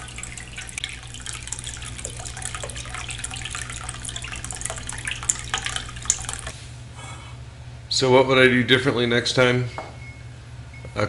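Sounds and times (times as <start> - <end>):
water trickling and splashing: 0.0 - 6.7
low pump hum: 0.0 - 8.0.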